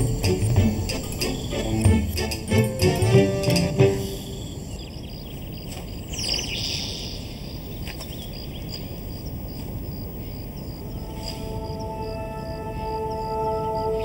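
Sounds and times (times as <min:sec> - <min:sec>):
gliding bird chirp: 0:00.0 - 0:08.8.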